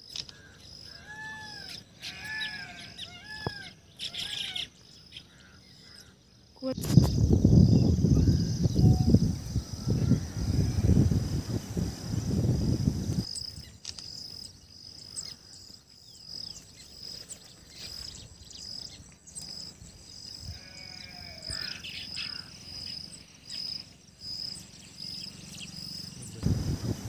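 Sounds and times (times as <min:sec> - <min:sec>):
wavering bird call: 0:00.9 - 0:04.7
bird chirps: 0:01.6 - 0:10.0.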